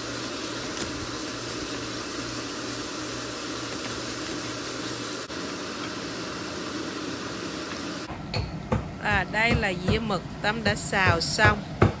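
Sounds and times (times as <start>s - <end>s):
food sizzling in oil: 0.0s - 8.1s.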